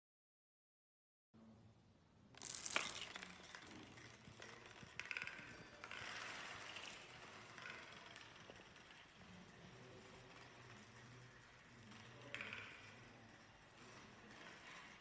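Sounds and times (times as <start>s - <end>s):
playing cards clattering down: 2.4s - 7.0s.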